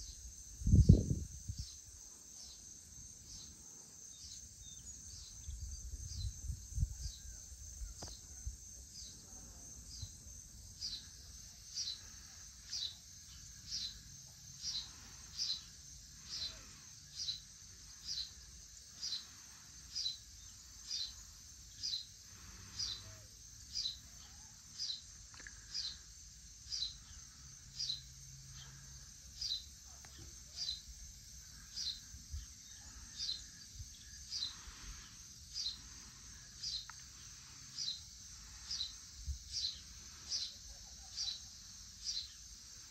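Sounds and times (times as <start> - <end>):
crickets droning: 0.0 - 42.9
bird chirping: 10.8 - 26.0, 26.7 - 28.8, 31.5 - 42.5.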